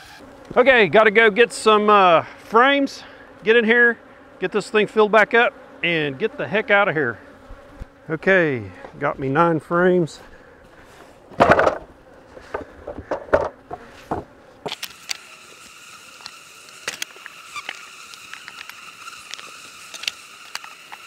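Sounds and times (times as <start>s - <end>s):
wooden frames knocking together: 11.3s - 14.3s
small clicks: 14.7s - 15.3s, 16.2s - 21.0s.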